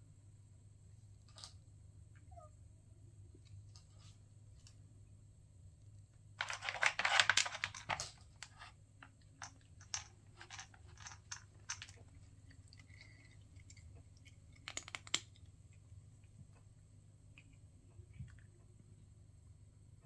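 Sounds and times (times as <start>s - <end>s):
cat crunching dry treats: 6.4s - 15.9s.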